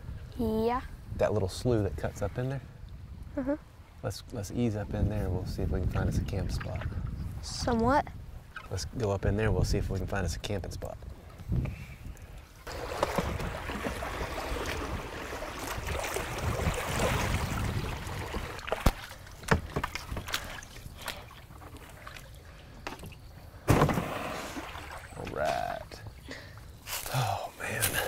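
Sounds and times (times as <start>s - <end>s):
paddles pulling through water: 11.0s - 26.9s
water swishing: 12.5s - 26.2s
loud thump: 23.7s - 24.4s.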